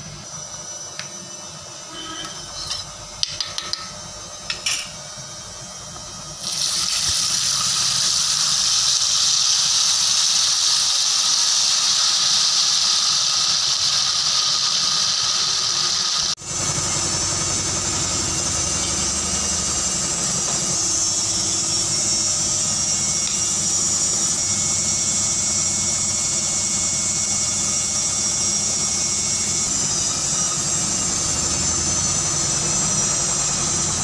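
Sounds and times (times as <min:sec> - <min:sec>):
oil sizzling loudly: 0:06.3 - 0:20.2.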